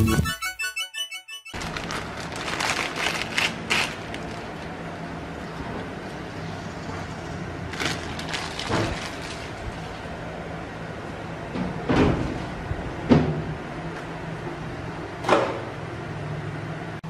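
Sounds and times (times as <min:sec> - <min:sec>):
plastic packaging crinkling: 0:01.6 - 0:04.8, 0:07.7 - 0:09.9.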